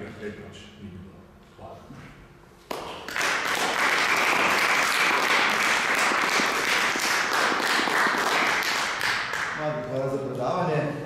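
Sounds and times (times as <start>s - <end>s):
audience applauding: 2.7s - 9.6s.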